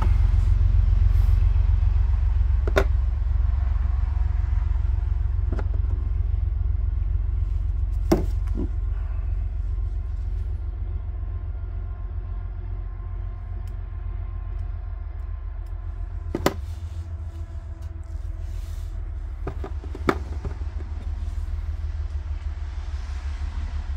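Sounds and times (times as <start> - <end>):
steady low rumble: 0.0 - 23.9.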